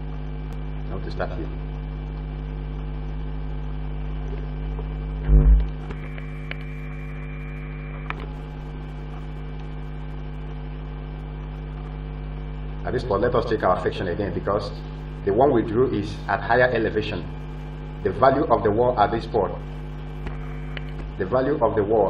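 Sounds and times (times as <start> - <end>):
electrical mains hum: 0.0 - 22.0
low double thump: 5.2 - 5.8.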